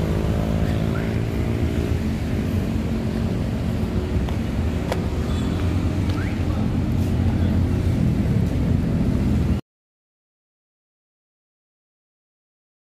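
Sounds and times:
vehicle engine humming: 0:00.0 - 0:09.6.

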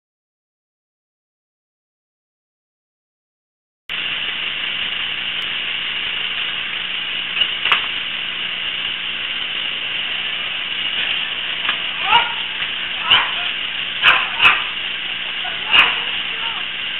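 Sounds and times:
faint hum: 0:03.9 - 0:16.9
microphone hiss: 0:03.9 - 0:16.9.

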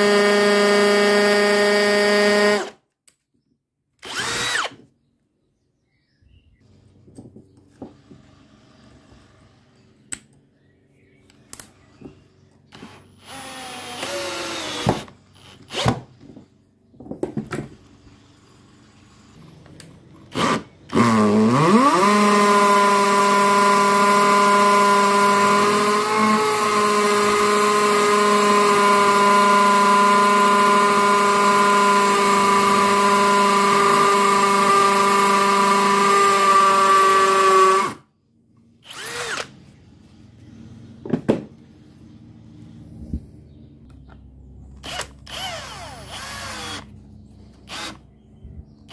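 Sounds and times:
drill driving a screw: 0:04.0 - 0:04.8, 0:12.7 - 0:16.1, 0:20.3 - 0:38.0, 0:38.8 - 0:39.6, 0:44.8 - 0:47.0, 0:47.6 - 0:48.0
hammer drill drilling into concrete: 0:04.0 - 0:04.8, 0:12.7 - 0:16.0, 0:20.3 - 0:38.0, 0:38.8 - 0:39.6, 0:44.8 - 0:46.9, 0:47.6 - 0:48.0.

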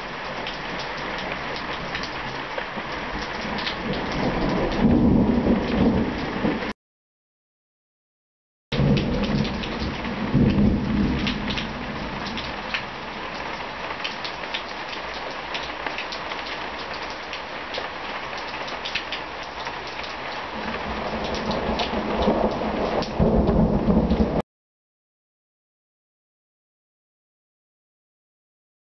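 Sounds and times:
heavy rain falling: 0:00.0 - 0:06.8, 0:08.8 - 0:24.4
rolling thunder: 0:03.6 - 0:06.7, 0:08.8 - 0:13.2, 0:20.6 - 0:24.4.

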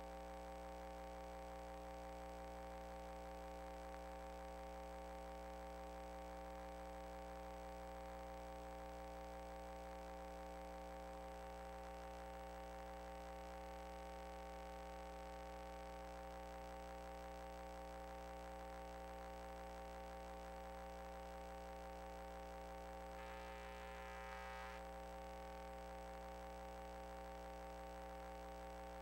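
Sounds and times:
faint electrical mains hum: 0:00.0 - 0:29.0
faint high-pitched tone: 0:23.2 - 0:24.8.

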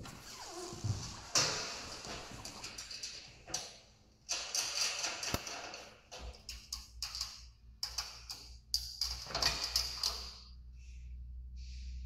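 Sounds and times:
metal bed rail rattling and clicking: 0:01.2 - 0:10.5.

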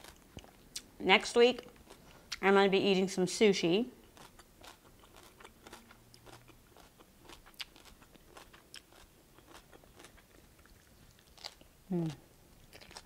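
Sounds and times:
faint chewing: 0:04.0 - 0:13.0.

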